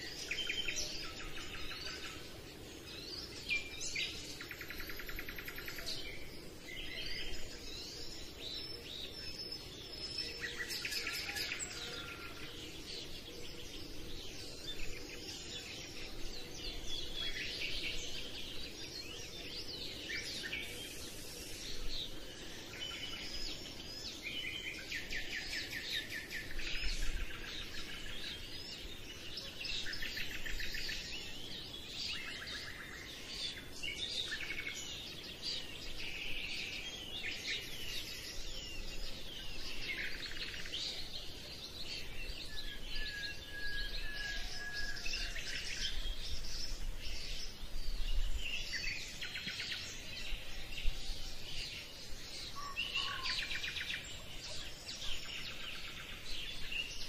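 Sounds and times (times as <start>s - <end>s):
small birds chirping and trilling: 0.0s - 57.0s
steady background hiss: 0.0s - 57.0s.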